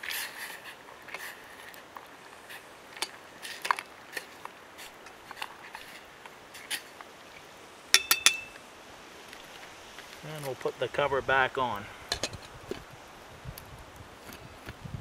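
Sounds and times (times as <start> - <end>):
loud metallic clinks: 8.0 - 8.6.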